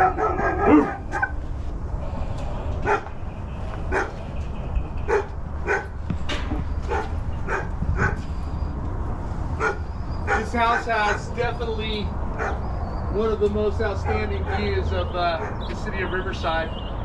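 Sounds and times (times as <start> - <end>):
dog barking: 0.0 - 1.4, 2.8 - 3.1, 3.9 - 4.2, 5.1 - 5.9, 6.9 - 8.2, 9.6 - 11.3, 12.4 - 12.6, 14.0 - 14.7, 15.4 - 15.6.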